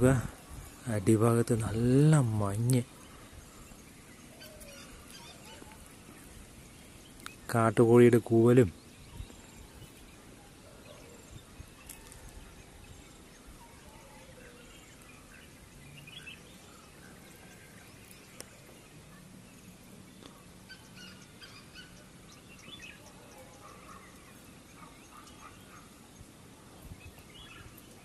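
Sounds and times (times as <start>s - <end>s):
faint birdsong: 0.0s - 28.0s
faint clicks: 7.2s - 7.4s.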